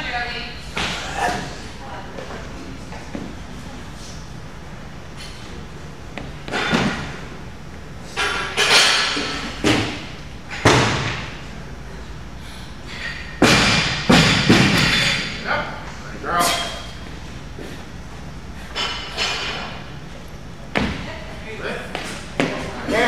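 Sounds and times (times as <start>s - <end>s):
heavy thuds echoing in a hall: 13.3s - 15.0s.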